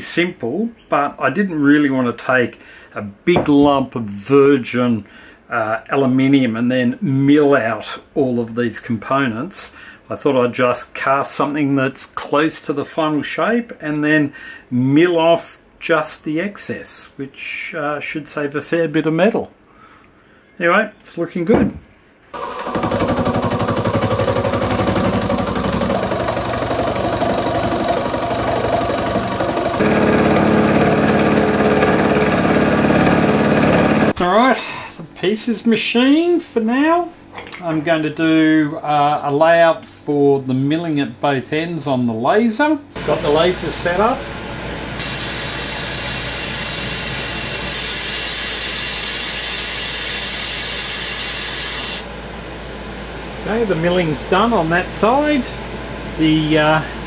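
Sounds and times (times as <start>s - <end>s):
milling machine cutting metal: 22.4s - 34.1s, 45.0s - 52.0s
laser hissing on metal: 45.0s - 52.1s.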